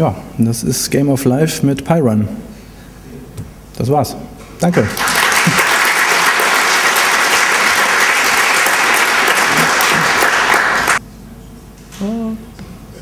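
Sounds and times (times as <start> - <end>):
audience applauding: 4.7 - 11.0.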